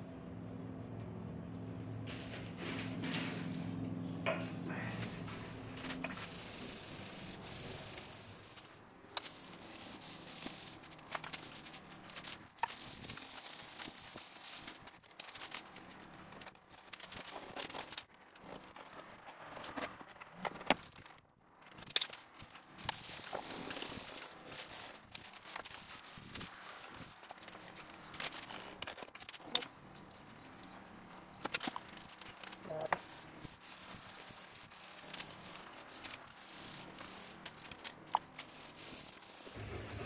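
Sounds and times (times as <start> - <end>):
scouring pad scrubbing wood: 39.2 - 40.0.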